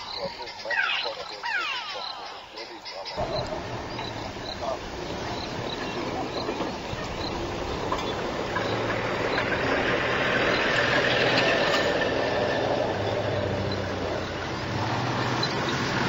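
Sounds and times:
vehicle engine running: 3.2 - 16.0.

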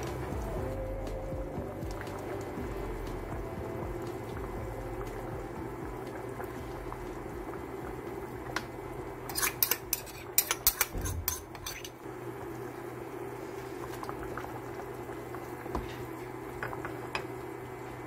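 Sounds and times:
stew bubbling in a pot: 0.0 - 18.0
metal spoon clinking on pot: 9.3 - 12.0.

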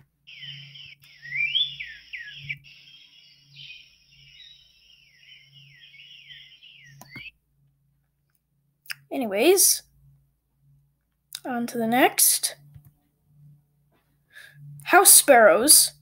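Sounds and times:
cardinal song whistled notes: 0.3 - 7.3.

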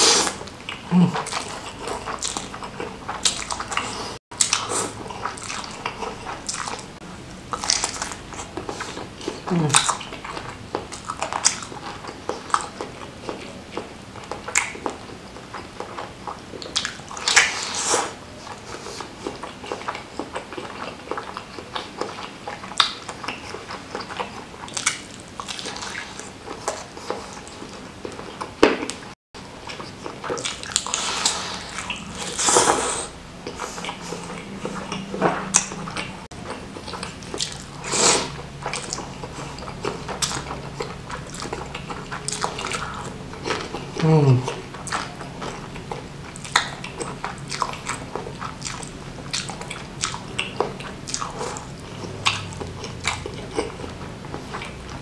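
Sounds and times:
slurping noodles: 0.0 - 2.1, 30.4 - 34.9, 37.4 - 38.4
wet chewing and lip-smacking: 0.2 - 55.0.

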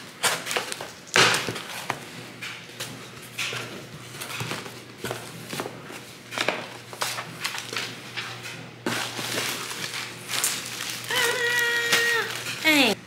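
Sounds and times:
plastic wrapping crinkling: 8.9 - 13.0.

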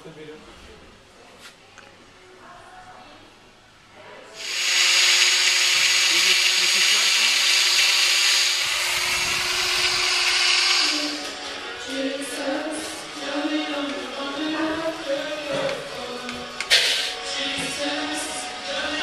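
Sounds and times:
angle grinder whine: 4.4 - 12.2.

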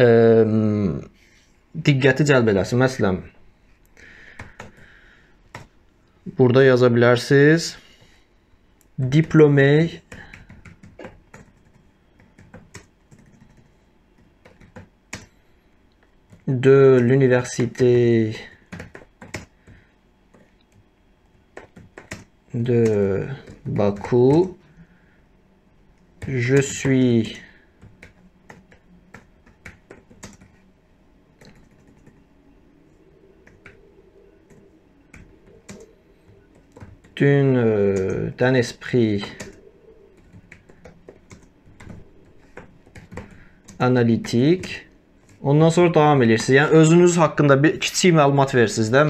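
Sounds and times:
computer keyboard keystrokes: 4.4 - 4.9, 5.5 - 5.7, 10.1 - 15.4, 18.6 - 20.8, 21.5 - 24.6, 27.8 - 30.6, 31.4 - 32.2, 33.4 - 33.8, 34.5 - 37.2, 39.2 - 39.6, 40.2 - 45.4.

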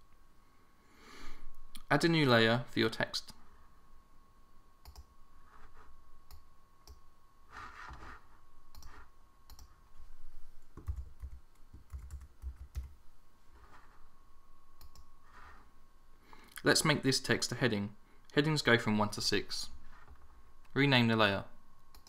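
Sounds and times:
computer keyboard and mouse clicks: 4.8 - 5.1, 8.7 - 9.8, 10.8 - 13.0.

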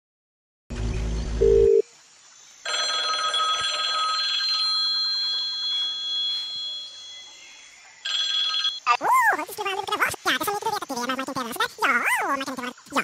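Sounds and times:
phone ringtone: 2.7 - 8.8.

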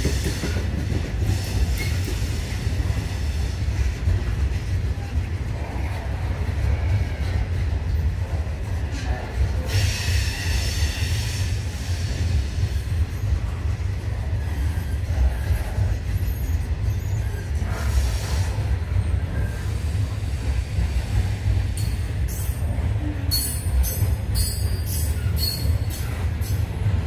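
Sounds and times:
train wheels rumbling on rail: 0.0 - 27.0
high-pitched wheel squeal: 23.4 - 26.2.

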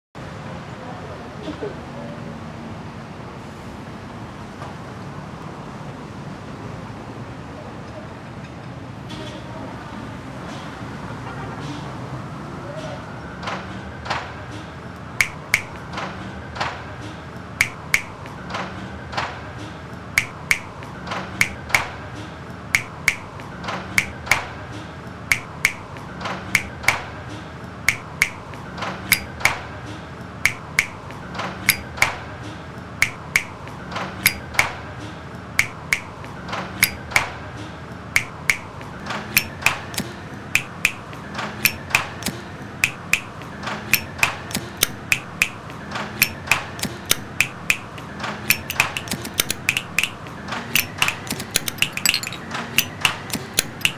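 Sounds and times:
looped rhythm of clicks and taps: 15.2 - 15.9, 17.6 - 18.4, 20.2 - 22.0, 22.7 - 24.5, 25.3 - 29.7, 30.4 - 32.2, 33.0 - 34.8, 35.6 - 37.4, 38.2 - 53.9.

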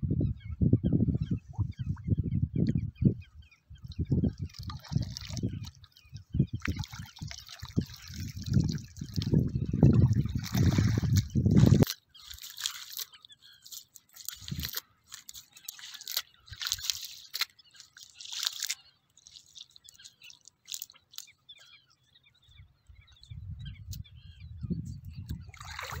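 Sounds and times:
water dripping and trickling: 3.8 - 21.3
small wet crackles: 3.8 - 21.8
wet net rushing from water: 9.9 - 13.0, 25.6 - 26.0.

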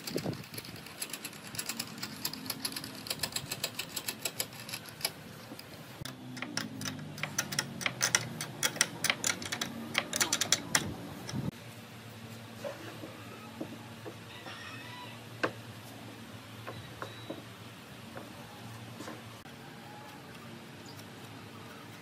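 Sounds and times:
spanner clicking on nut: 0.0 - 11.5.

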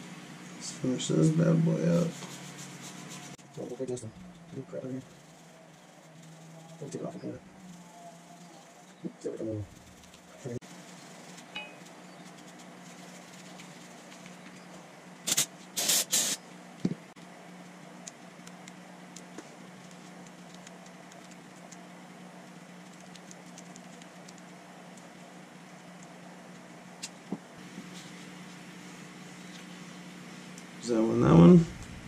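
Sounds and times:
steady low hum: 0.0 - 32.0
pressurised spray hissing: 15.2 - 16.4.

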